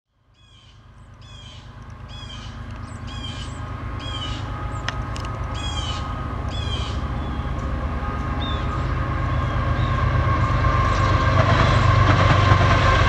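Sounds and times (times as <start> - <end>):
bird calling: 0.4 - 10.6
low rumble: 0.7 - 13.0.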